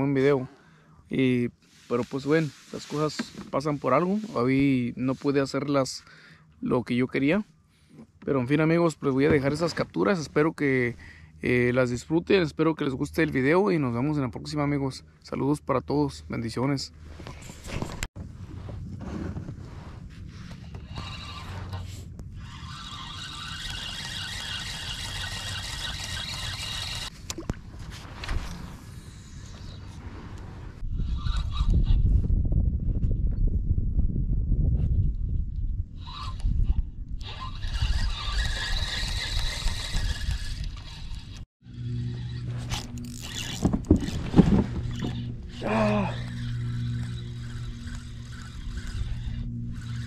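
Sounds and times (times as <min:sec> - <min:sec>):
fishing reel gear whir: 0:20.6 - 0:27.1, 0:36.0 - 0:50.0
sharp reel clicks: 0:20.9 - 0:27.1, 0:37.2 - 0:44.2, 0:44.8 - 0:50.0
steady low hum: 0:36.7 - 0:50.0.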